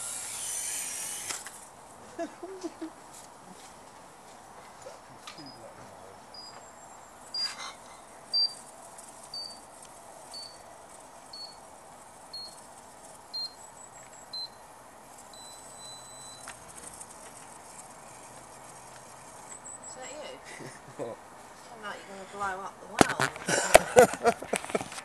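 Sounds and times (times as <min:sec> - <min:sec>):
rustle: 0:00.0 - 0:25.0
high electronic timer beeps: 0:05.4 - 0:07.7, 0:08.3 - 0:20.4.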